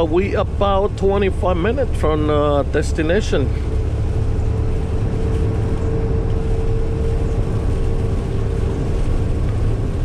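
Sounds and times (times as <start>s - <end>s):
engine and road drone in cab: 0.0s - 10.0s
steady hum: 0.0s - 10.0s.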